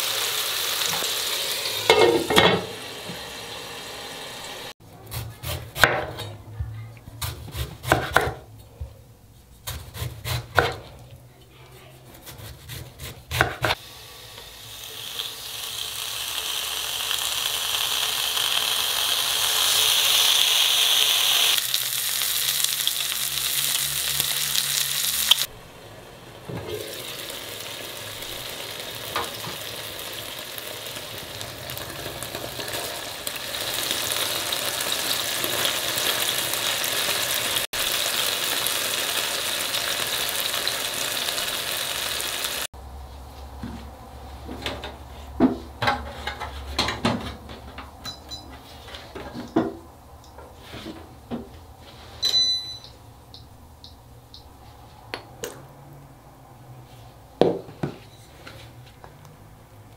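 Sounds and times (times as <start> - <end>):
food sizzling in pans: 0.0 - 4.8, 13.6 - 42.7
sharp knocks and clinks: 48.0 - 48.6.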